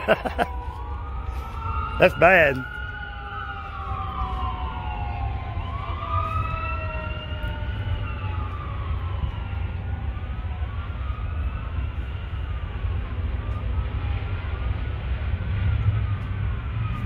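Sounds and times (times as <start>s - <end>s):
emergency sirens wailing: 0.0s - 17.0s.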